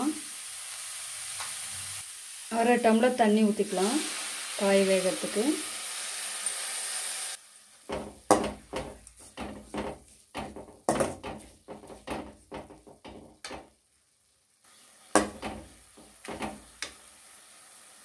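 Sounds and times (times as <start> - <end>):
metal spatula scraping metal pan: 7.9 - 13.6.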